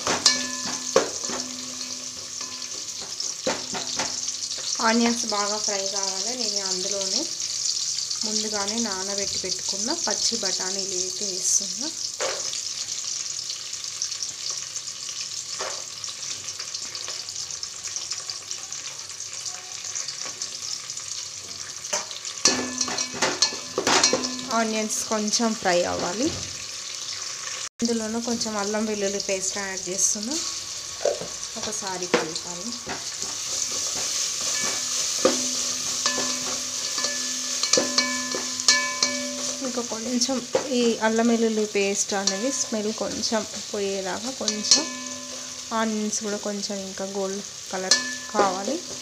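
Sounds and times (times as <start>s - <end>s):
spatula knocking on metal pot: 0.0s - 4.7s, 22.0s - 24.6s, 32.1s - 39.7s, 44.5s - 45.5s
vegetables sizzling in hot oil: 0.0s - 49.0s
spatula scraping pot: 32.8s - 40.7s.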